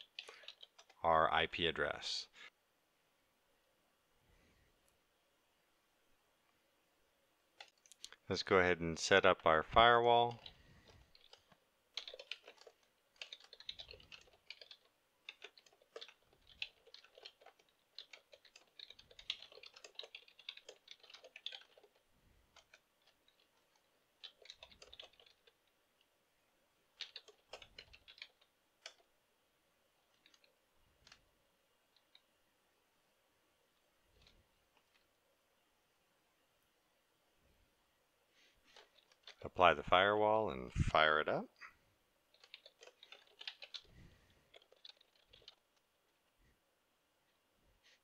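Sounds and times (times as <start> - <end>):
faint keyboard typing: 0.0 - 2.0, 7.5 - 8.2, 9.2 - 26.2, 26.8 - 29.2, 29.9 - 32.4, 33.6 - 35.3, 38.3 - 39.6, 42.2 - 46.5.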